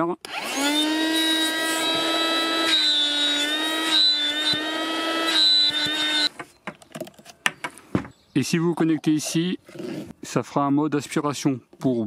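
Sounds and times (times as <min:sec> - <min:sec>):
air pump motor whine: 0:00.3 - 0:06.3.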